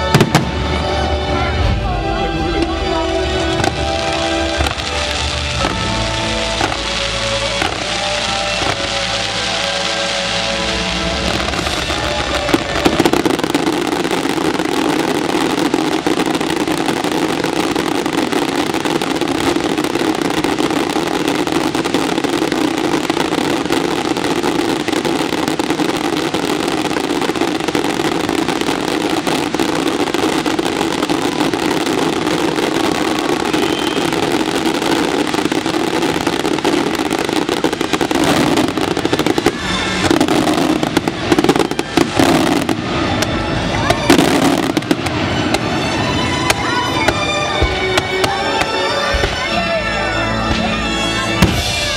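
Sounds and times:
soundtrack music: 0:00.0 - 0:30.8, 0:34.2 - 0:51.9
fireworks bangs: 0:00.0 - 0:51.9.

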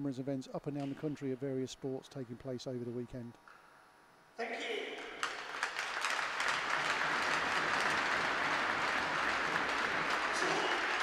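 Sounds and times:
crowd applauding: 0:05.2 - 0:11.0.

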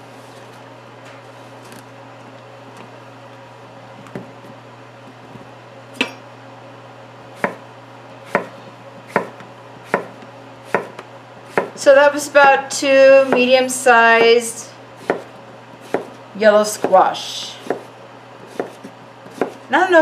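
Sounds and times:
knife striking cutting board: 0:15.0 - 0:16.1.

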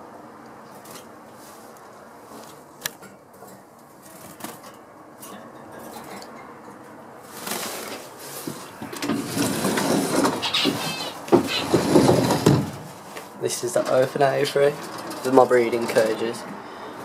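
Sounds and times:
clicks and clinks on wire cages: 0:02.5 - 0:08.0, 0:13.7 - 0:16.3
rustling: 0:07.2 - 0:14.1.

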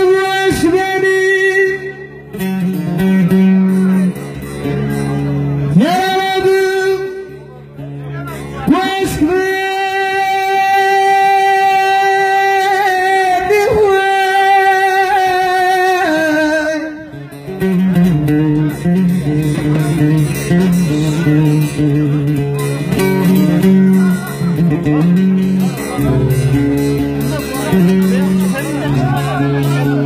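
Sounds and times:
man singing long high note: 0:00.0 - 0:02.2, 0:05.7 - 0:07.4, 0:08.6 - 0:17.2
plucked lute notes: 0:00.0 - 0:30.0.

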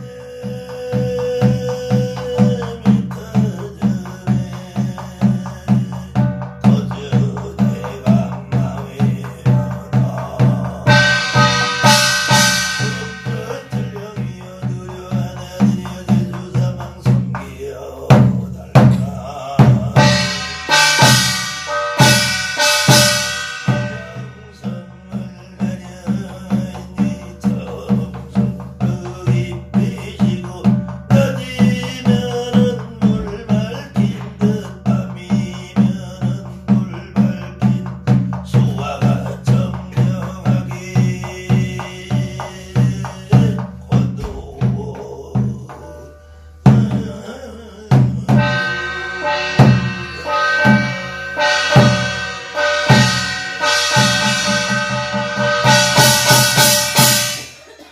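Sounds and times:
barrel drum beaten with stick: 0:00.0 - 0:46.1, 0:46.7 - 0:57.9
man chanting: 0:00.0 - 0:57.9
ringing brass gong: 0:10.9 - 0:14.1, 0:20.0 - 0:24.8, 0:48.3 - 0:57.8.

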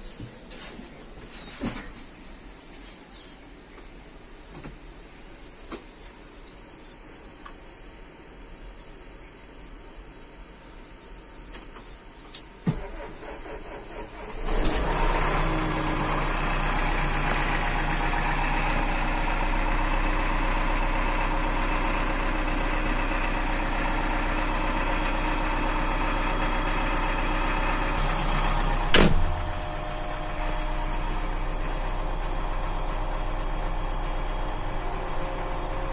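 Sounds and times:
high beep: 0:06.5 - 0:16.9
diesel engine cranking and idling: 0:12.4 - 0:35.9.

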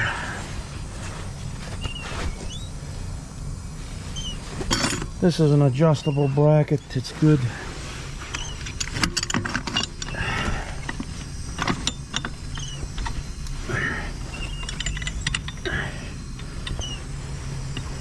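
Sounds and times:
steady low hum: 0:00.0 - 0:18.0
small squeaks: 0:01.6 - 0:02.8, 0:04.0 - 0:04.9, 0:05.7 - 0:07.4, 0:08.2 - 0:18.0
metal bolt clicking and scraping: 0:08.3 - 0:10.2, 0:10.8 - 0:13.2, 0:14.4 - 0:15.7.

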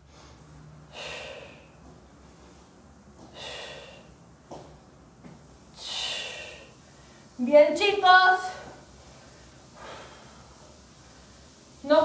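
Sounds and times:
woman exhaling forcefully: 0:00.9 - 0:01.8, 0:03.3 - 0:04.1, 0:05.8 - 0:06.8.

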